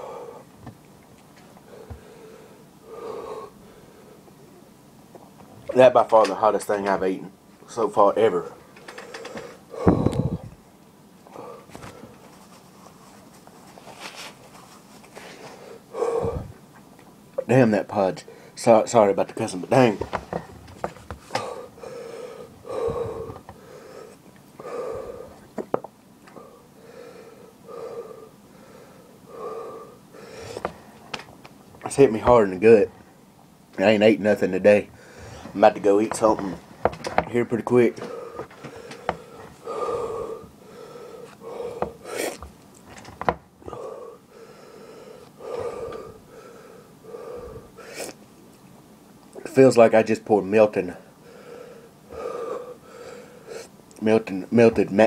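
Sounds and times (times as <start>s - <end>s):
man breathing heavily: 0.0s - 0.5s, 1.6s - 4.4s, 8.9s - 10.6s, 11.2s - 12.3s, 15.1s - 16.6s, 19.8s - 25.5s, 26.3s - 31.1s, 34.9s - 35.6s, 37.7s - 42.4s, 43.6s - 48.2s, 51.0s - 53.8s.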